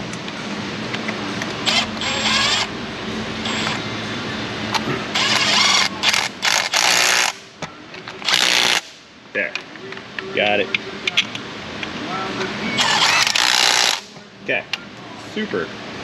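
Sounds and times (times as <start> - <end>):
cordless ratchet whirring: 1.6 - 2.7, 3.4 - 3.8, 5.1 - 7.4, 8.2 - 8.9, 12.8 - 14.1.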